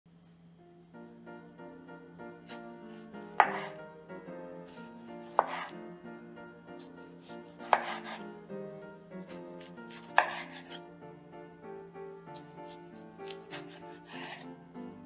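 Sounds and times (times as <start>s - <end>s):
background music: 0.2s - 15.0s
knife striking cutting board: 2.5s - 3.8s, 4.8s - 5.7s, 6.8s - 8.2s, 9.2s - 10.8s, 13.2s - 14.4s.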